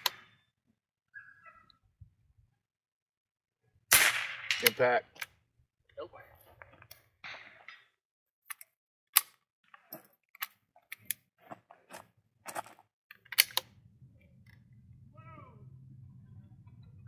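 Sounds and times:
rifle bolt clicking: 13.1s - 13.7s.

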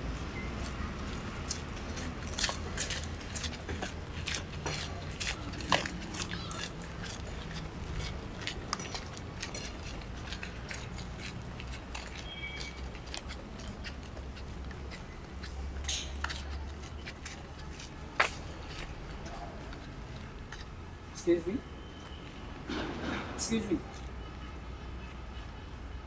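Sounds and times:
footsteps on leaves and dirt: 0.6s - 20.8s.

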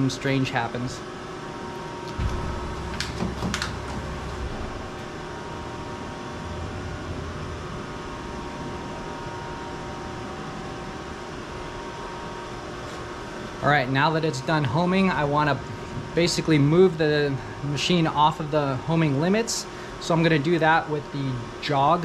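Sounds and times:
cooling fans humming: 0.0s - 22.0s
machine axis drive drone: 2.0s - 12.1s.

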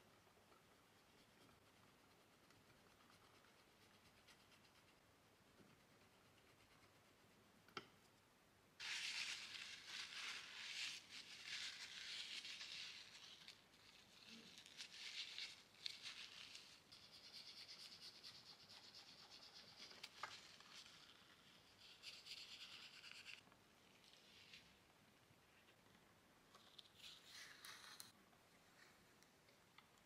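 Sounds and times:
oil pastel scratching on paper: 1.0s - 5.0s, 5.6s - 7.4s, 8.8s - 23.4s, 26.7s - 28.2s.

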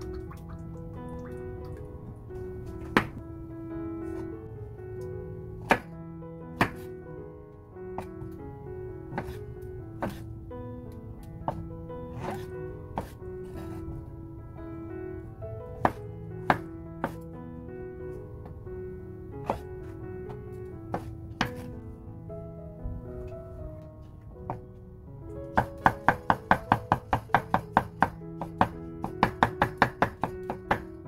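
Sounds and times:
background music with held tones: 0.0s - 31.0s.

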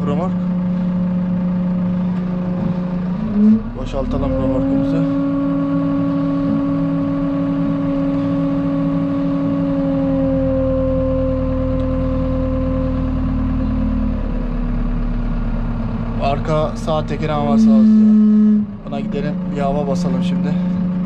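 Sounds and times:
hydraulics tipping trailer: 0.0s - 21.0s
tractor engine running: 0.0s - 21.0s.

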